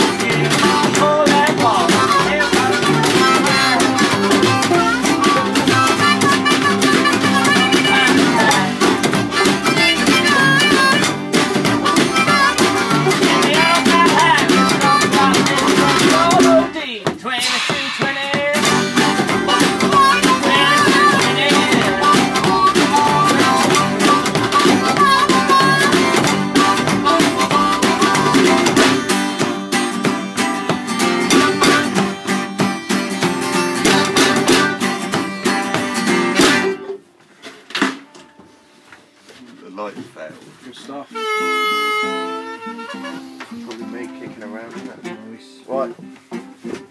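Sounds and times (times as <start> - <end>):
banjo: 0.0 - 16.7, 17.3 - 37.0
harmonica: 0.0 - 16.8, 17.4 - 37.0, 40.9 - 44.5.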